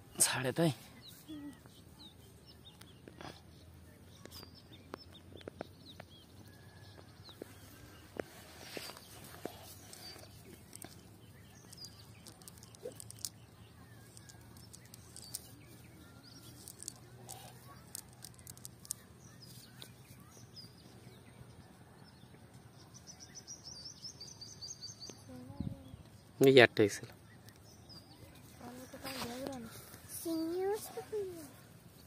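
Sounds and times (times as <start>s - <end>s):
bird chirps: 0.0s - 32.0s
net ticks and rustles: 7.8s - 19.9s.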